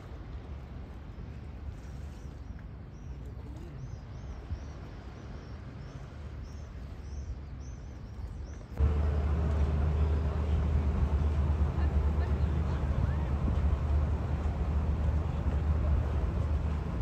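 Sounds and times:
low steady rumble: 8.7s - 17.0s
loud low hum: 8.8s - 17.0s.

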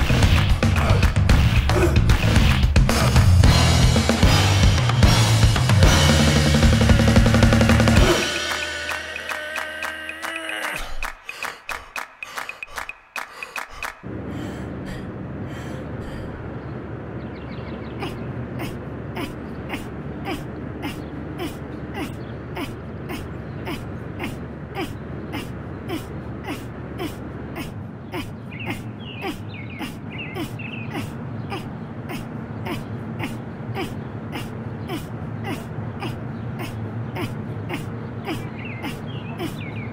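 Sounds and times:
rushing outdoor background noise: 0.0s - 39.9s
cartoon exertion grunts: 7.9s - 11.2s, 18.0s - 39.6s
steady low hum: 14.0s - 39.9s.

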